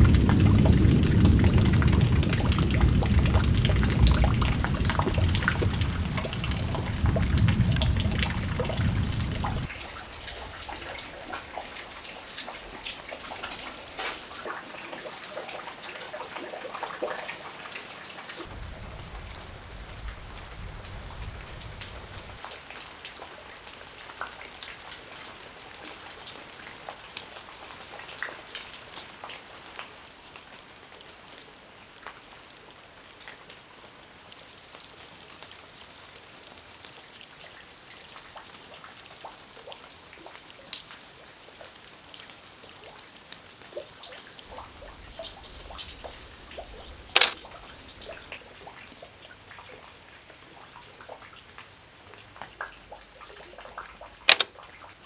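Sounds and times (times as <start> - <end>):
low rumble: 0.0 - 9.8, 18.5 - 22.4
rain falling: 0.0 - 55.0
raindrops ticking close by: 0.0 - 55.0.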